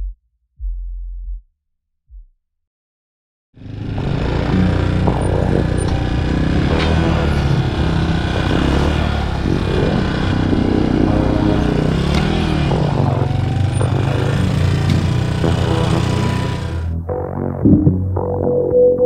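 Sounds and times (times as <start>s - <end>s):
dirt bike engine revving: 3.6s - 16.9s.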